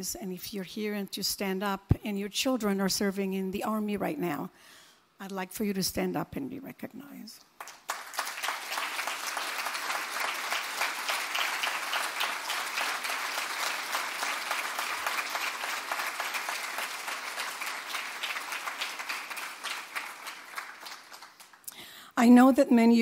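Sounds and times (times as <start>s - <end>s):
audience applauding: 7.6s - 21.7s.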